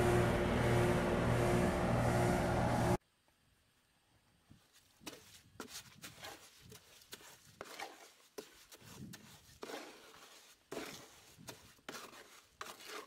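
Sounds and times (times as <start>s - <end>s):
shovel scraping concrete mix: 5.0s - 13.0s.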